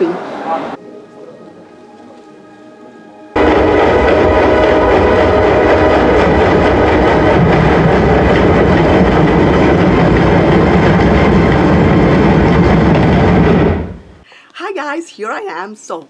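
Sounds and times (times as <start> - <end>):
film soundtrack low rumble: 2.8 - 14.2.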